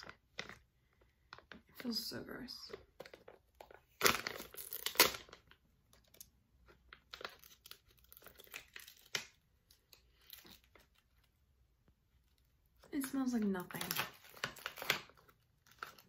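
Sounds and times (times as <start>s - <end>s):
sachet crinkling: 3.0s - 11.3s
sachet ripping: 3.9s - 6.3s, 6.9s - 11.3s, 13.7s - 16.0s.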